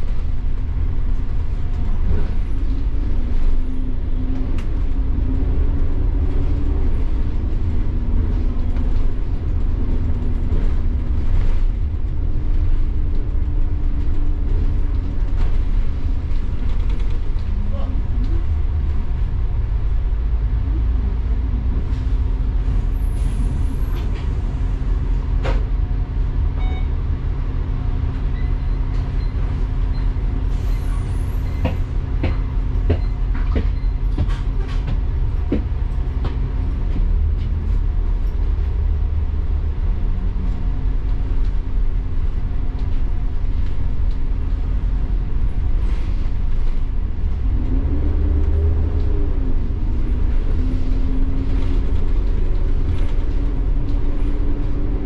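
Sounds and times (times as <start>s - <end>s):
bus engine and road rumble: 0.0s - 55.0s.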